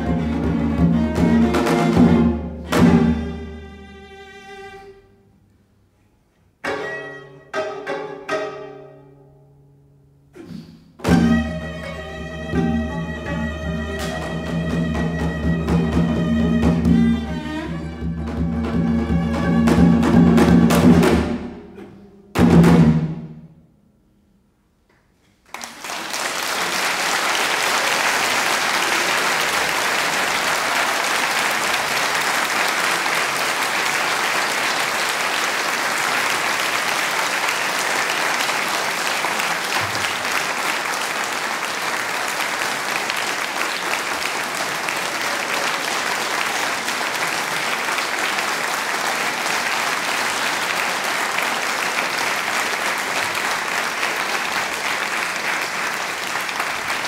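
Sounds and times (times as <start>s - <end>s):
cello zither and drum trio: 0.0s - 4.9s, 6.6s - 9.2s, 11.0s - 23.4s
audience applause: 25.5s - 57.0s.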